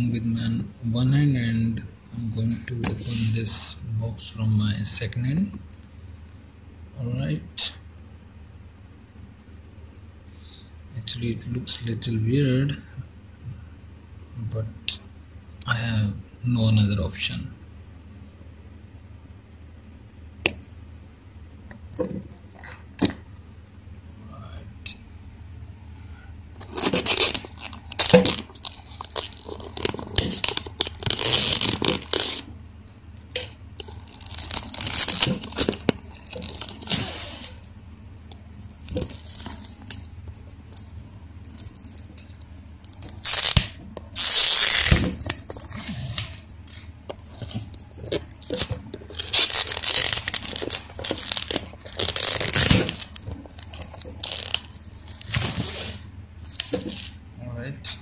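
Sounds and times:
plastic wrap crinkling and tearing: 26.6s - 32.5s, 33.4s - 37.7s, 38.6s - 57.2s.

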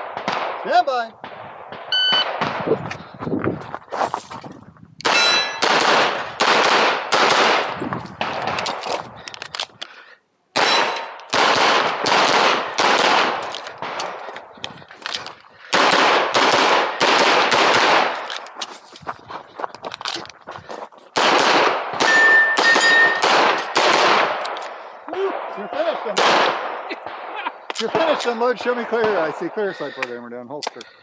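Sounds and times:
pistol shots with echo: 0.0s - 2.8s, 5.0s - 8.7s, 10.6s - 14.2s, 15.6s - 18.3s, 21.2s - 24.5s, 25.1s - 30.1s.

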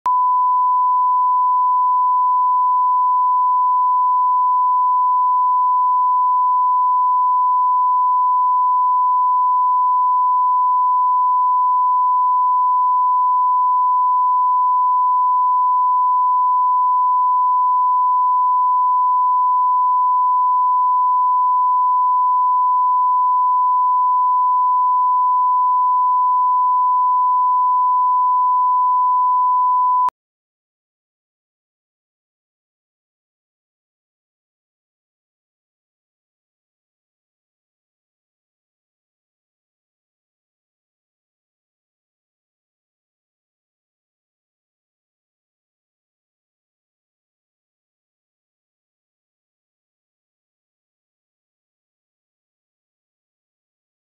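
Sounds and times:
pure reference test tone: 0.1s - 30.1s.

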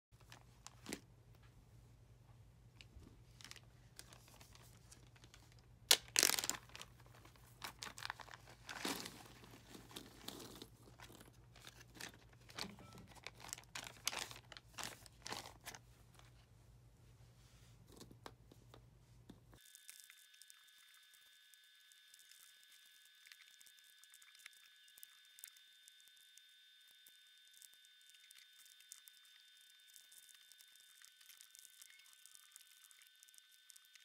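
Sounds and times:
plastic bag crinkling: 0.2s - 1.0s, 2.8s - 16.3s
puzzle pieces rustling and clicking: 3.4s - 15.8s
zipper seal ripping open: 5.9s - 6.9s, 7.6s - 15.8s.

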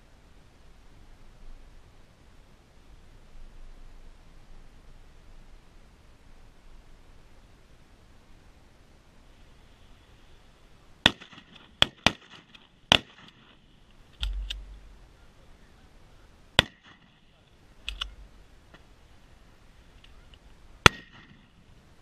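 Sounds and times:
shotgun shots: 11.0s - 13.6s, 16.6s - 17.2s, 20.8s - 21.6s
faint paired clicks: 13.3s - 14.9s, 17.8s - 18.9s.

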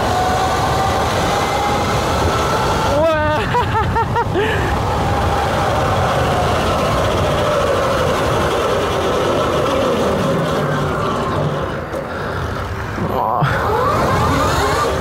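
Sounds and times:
wind and road noise: 0.0s - 15.0s
electric motor whining: 13.4s - 15.0s.

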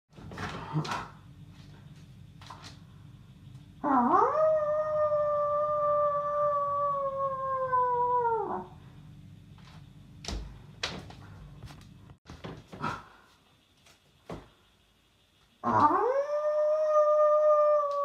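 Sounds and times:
person imitating wolf howl: 3.8s - 8.7s, 15.6s - 18.0s.

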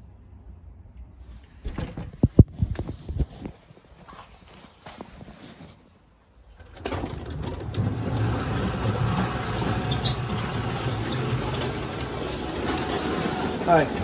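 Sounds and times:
garage door rattling: 6.5s - 14.0s
garage door opener motor hum: 6.6s - 14.0s.

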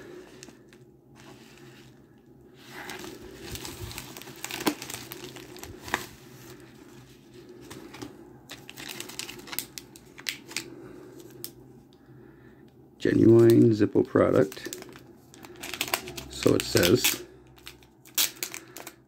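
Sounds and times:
plastic packaging crinkling: 2.7s - 6.7s, 7.5s - 11.6s, 13.1s - 19.0s.

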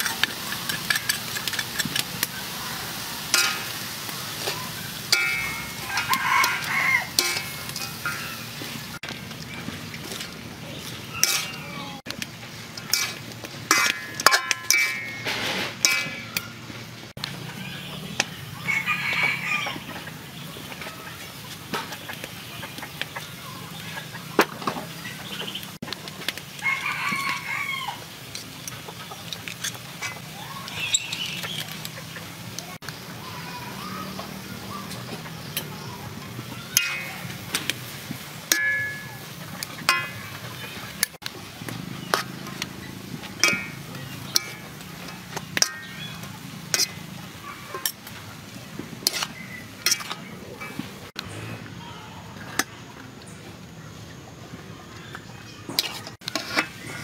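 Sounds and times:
chickens calling: 0.0s - 14.2s, 14.9s - 57.0s
rooster-like call: 2.4s - 8.5s, 18.6s - 20.0s, 26.6s - 28.1s
metal spatula clinking on wok: 3.3s - 3.8s, 4.4s - 8.7s, 11.2s - 11.6s, 12.8s - 16.5s, 36.7s - 37.8s, 38.5s - 40.4s, 43.4s - 47.0s
metal spatula clicking on wok: 4.4s - 8.4s, 45.5s - 46.0s.

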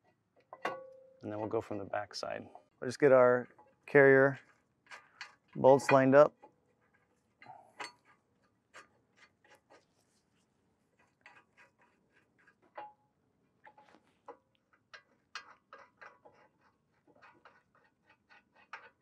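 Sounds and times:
faint metallic clicks and taps: 11.0s - 13.0s, 13.6s - 19.0s.

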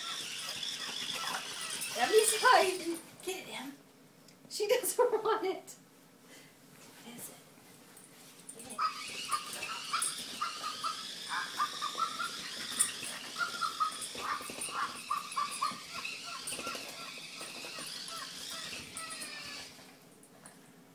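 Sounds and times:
small dogs whining and yipping: 0.0s - 2.8s, 8.6s - 19.9s.

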